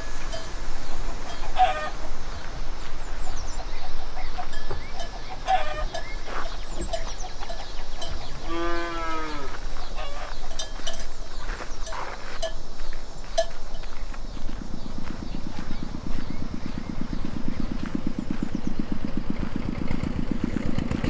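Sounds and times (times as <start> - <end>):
hens clucking: 0.0 - 8.6, 9.6 - 12.4
drawn-out animal call: 0.0 - 21.0.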